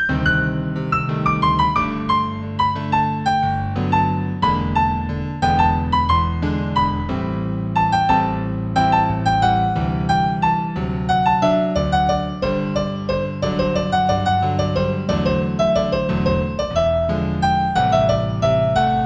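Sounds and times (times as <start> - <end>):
solo piano piece: 0.0 - 19.0.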